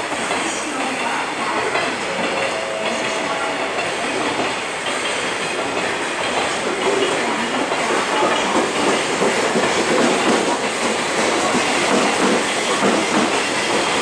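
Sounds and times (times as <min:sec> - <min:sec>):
electric train pulling in: 0:00.0 - 0:14.0
wheels running on rails: 0:00.0 - 0:14.0.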